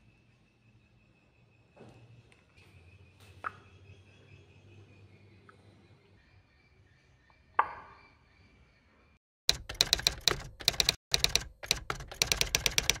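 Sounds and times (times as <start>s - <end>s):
typewriter key clicks: 9.5s - 13.0s.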